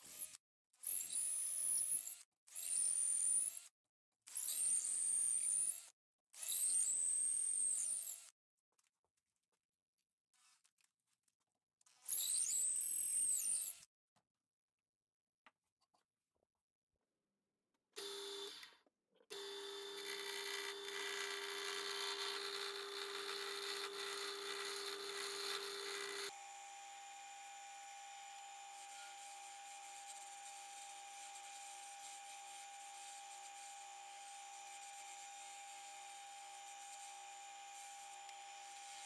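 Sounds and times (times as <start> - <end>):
wood lathe motor whine: 19.3 - 39.0
rough wood cutting: 19.4 - 26.4.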